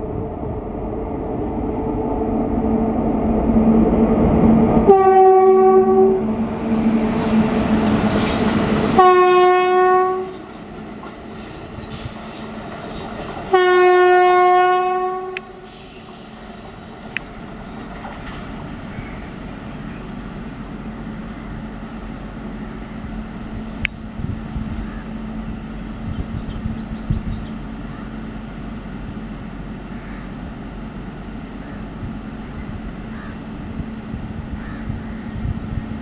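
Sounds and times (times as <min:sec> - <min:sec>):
locomotive rumble: 0:00.0 - 0:36.0
train rushing past: 0:00.0 - 0:36.0
locomotive horn blasts: 0:04.7 - 0:10.5, 0:13.5 - 0:15.6.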